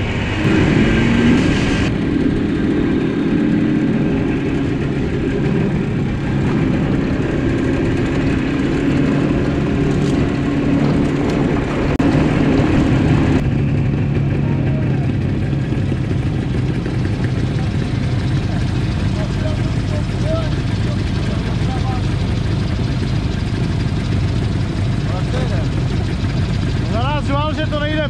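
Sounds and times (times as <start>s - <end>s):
wind rush on microphone: 0.0s - 14.4s
motorcycle engines running: 0.0s - 28.0s
motorcycle engines idling: 1.9s - 28.0s.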